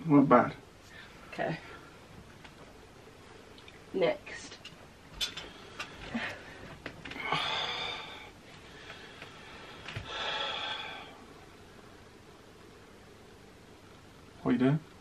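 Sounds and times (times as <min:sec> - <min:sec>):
person breathing out heavily: 0:07.2 - 0:11.2.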